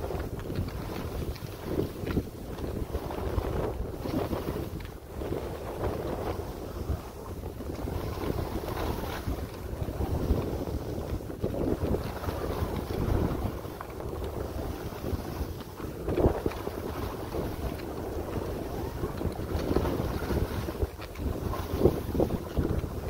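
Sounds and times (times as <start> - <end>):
skis scraping on snow: 0.0 - 23.0
wind buffeting microphone: 0.0 - 23.0.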